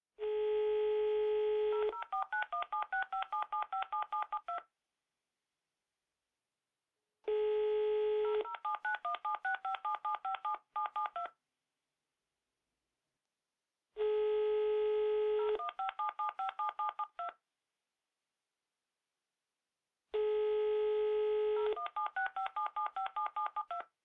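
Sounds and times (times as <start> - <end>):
telephone dial tone: 1.7 - 4.7, 7.3 - 11.4, 14.0 - 17.4, 20.2 - 23.9
touch-tone dialing beeps: 2.0 - 4.6, 8.2 - 11.3, 15.4 - 17.4, 21.7 - 23.9.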